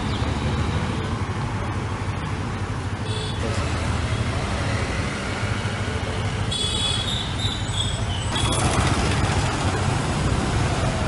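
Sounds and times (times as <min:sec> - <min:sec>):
passing vehicle engines rumbling: 0:00.0 - 0:11.0
bus passing close: 0:03.4 - 0:11.0.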